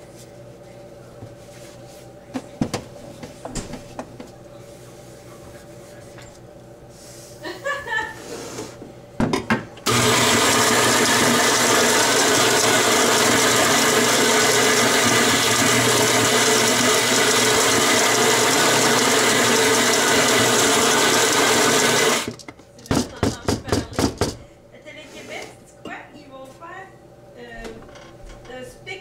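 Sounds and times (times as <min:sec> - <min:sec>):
coffee grinder motor running: 0:09.9 - 0:22.4.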